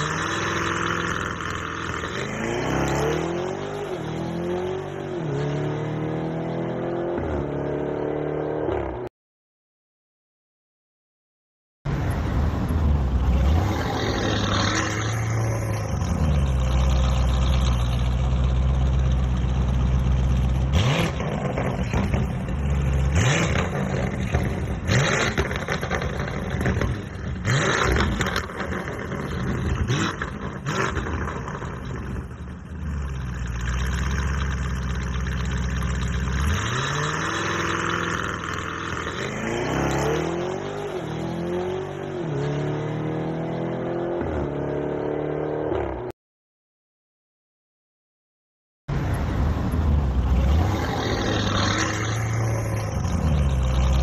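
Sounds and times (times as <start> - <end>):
car exhaust idling and revving: 14.4 - 41.9, 49.0 - 54.0.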